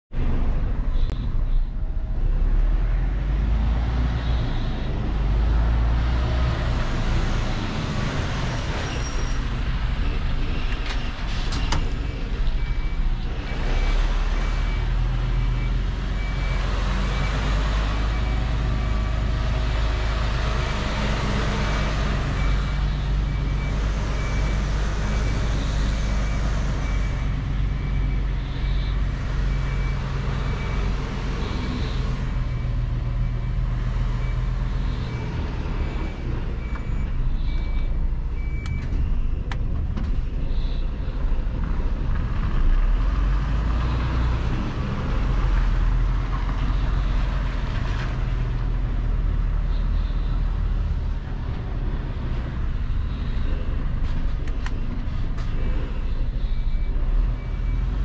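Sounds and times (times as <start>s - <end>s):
truck engine rumbling: 0.1s - 58.0s
reversing beeper beeps: 12.3s - 39.4s, 55.6s - 58.0s.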